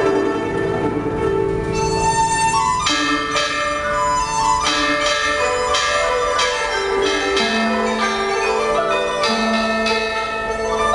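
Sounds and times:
held melody notes: 0.0s - 10.9s
bronze chime bells ringing: 4.6s - 10.9s.

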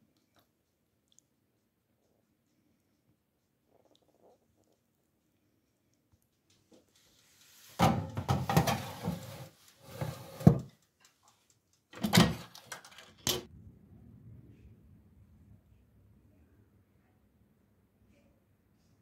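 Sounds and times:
knocks and scrapes from handling: 7.7s - 10.7s
kitchen utensils clattering: 7.8s - 10.7s.

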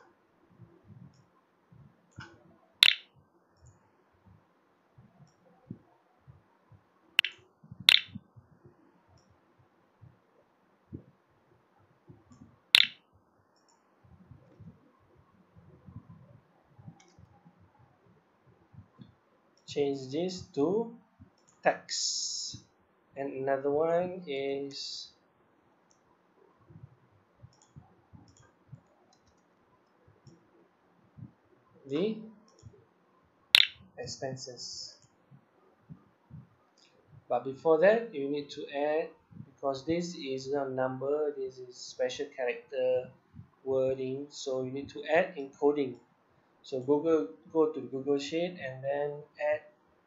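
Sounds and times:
computer mouse clicking: 2.8s - 3.0s, 7.2s - 8.2s, 12.8s - 13.0s
computer mouse clicks: 2.8s - 3.0s, 7.2s - 8.2s, 12.8s - 13.0s, 27.5s - 29.5s.

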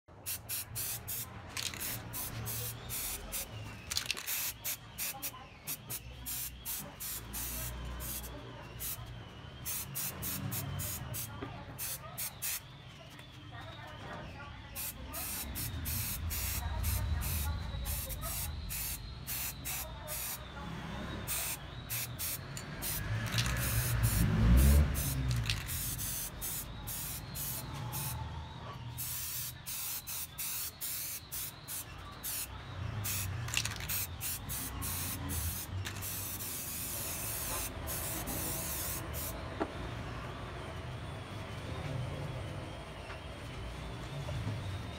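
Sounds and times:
paint spraying in hissing bursts: 0.2s - 12.6s, 14.8s - 20.4s, 21.2s - 28.2s, 29.0s - 39.4s.

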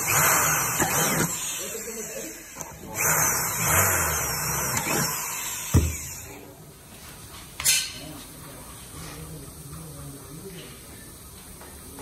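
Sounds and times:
electric drill boring through steel: 0.0s - 6.4s
sharp knock: 5.7s - 6.1s.

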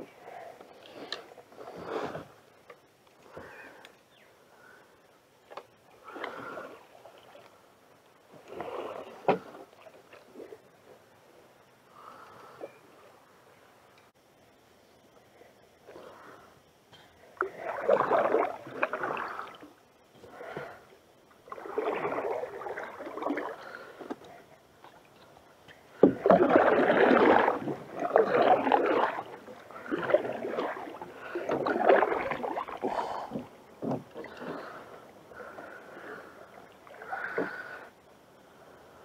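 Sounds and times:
paddle splashing through water: 17.4s - 19.6s, 21.5s - 23.9s, 26.0s - 35.8s.

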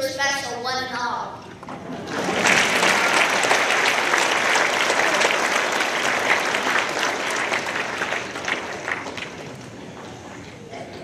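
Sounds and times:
audience applauding: 1.8s - 10.4s.

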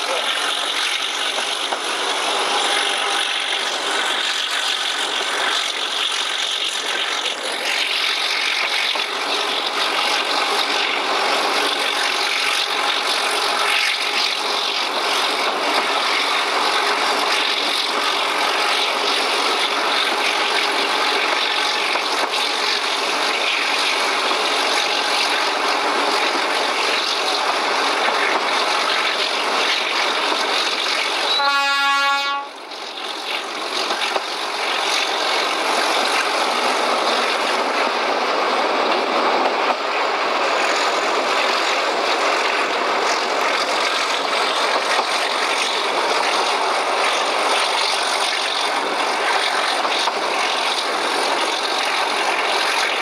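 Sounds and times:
train rushing along: 0.0s - 53.0s
locomotive horn blast: 31.2s - 32.6s.

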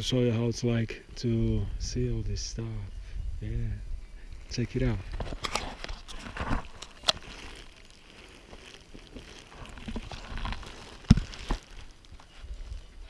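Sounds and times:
camera handling clicks and knocks: 5.2s - 6.2s
fabric rustling: 5.2s - 13.0s.

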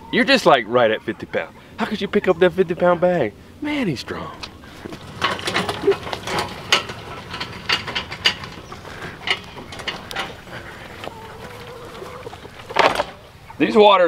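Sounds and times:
hand truck rattling over grass: 3.7s - 13.8s.

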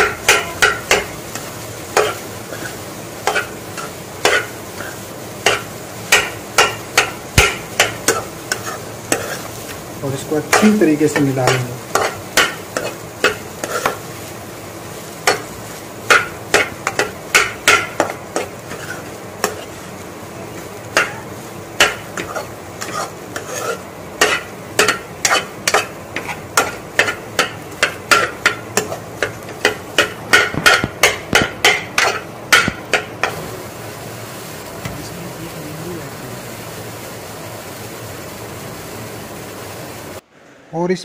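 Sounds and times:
metal spatula scraping a pan: 0.0s - 9.7s, 10.5s - 14.1s, 16.1s - 19.9s, 20.9s - 33.4s
rice sizzling: 0.0s - 40.2s.

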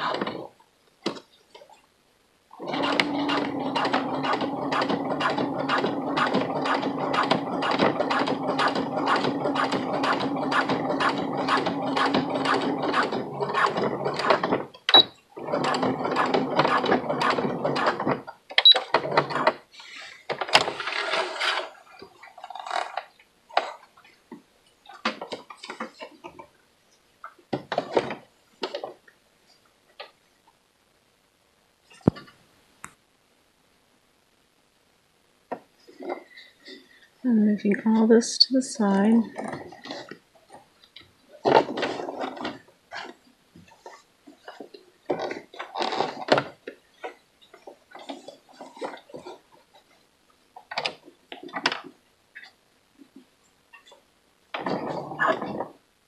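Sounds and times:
sewing machine stitching: 0.0s - 0.5s, 2.6s - 19.6s
sewing machine clicks: 2.6s - 19.6s.

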